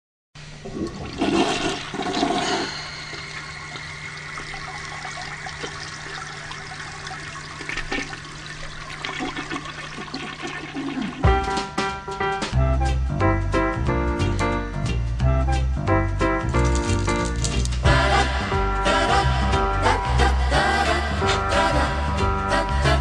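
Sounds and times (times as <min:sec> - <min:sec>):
toilet flushing: 0:00.4 - 0:11.8.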